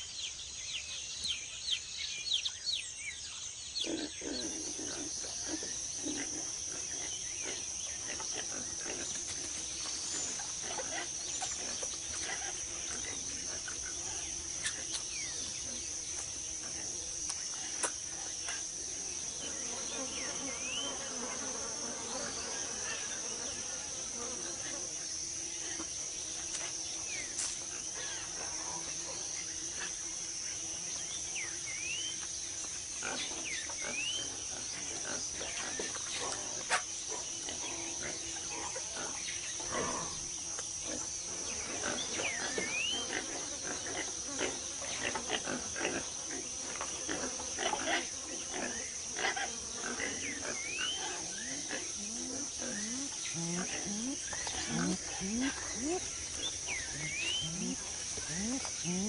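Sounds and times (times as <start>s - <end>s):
high-pitched insect drone: 37.4s - 59.0s
low animal calls: 51.2s - 59.0s.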